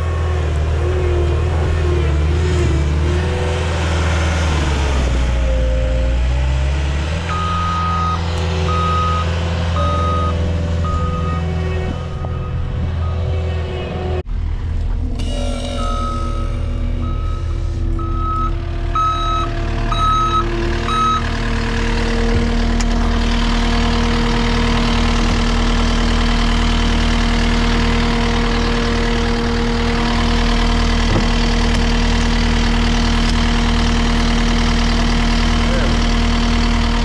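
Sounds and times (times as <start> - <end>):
diesel engine running: 0.0 - 37.0
backup alarm beeping: 7.3 - 13.6, 15.4 - 21.2.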